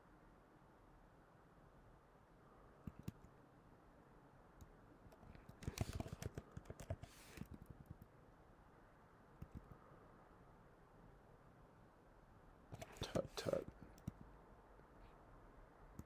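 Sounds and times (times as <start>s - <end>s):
typing on computer keyboard: 2.8s - 3.3s, 5.1s - 8.1s.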